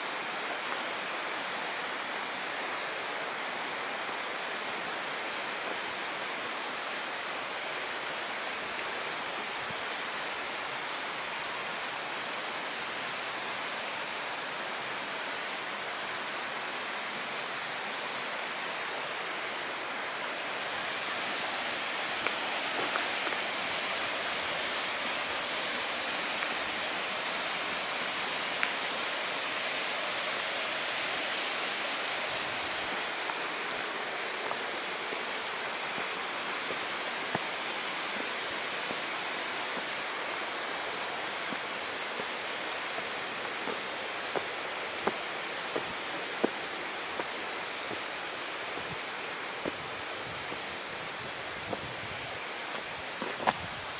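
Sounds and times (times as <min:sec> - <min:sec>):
falling water rushing: 0:00.0 - 0:53.9
faint ticks: 0:22.2 - 0:23.5.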